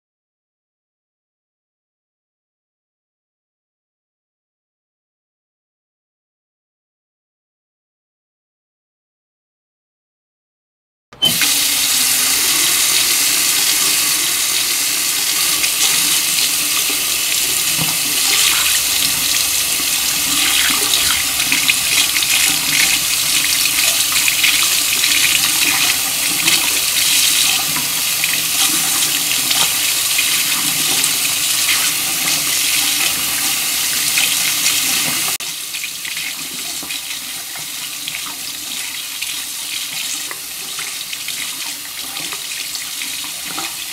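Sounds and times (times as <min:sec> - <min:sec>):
water running into sink: 0:11.2 - 0:43.9.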